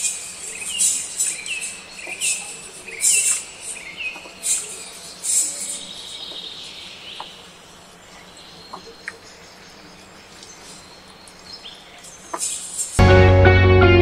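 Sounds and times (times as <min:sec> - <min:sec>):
birds chirping: 0:00.0 - 0:13.0
music: 0:13.0 - 0:14.0.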